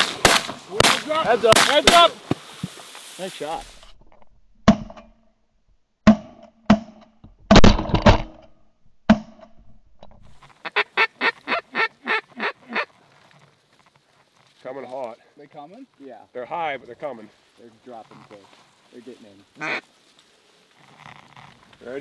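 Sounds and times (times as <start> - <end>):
shotgun shots: 0.0 - 2.1
duck quacks: 10.6 - 12.9, 19.6 - 19.8.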